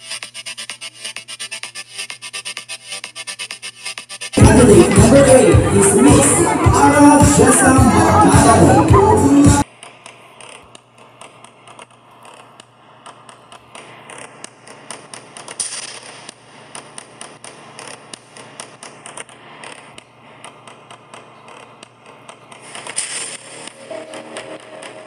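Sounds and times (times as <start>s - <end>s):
irregular crackling and clicking: 9.6s - 25.0s.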